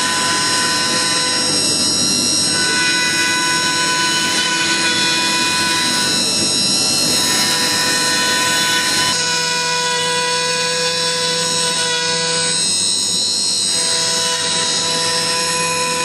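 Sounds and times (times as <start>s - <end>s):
bit cutting wood: 0.0s - 16.0s
router spindle whining: 0.0s - 16.0s.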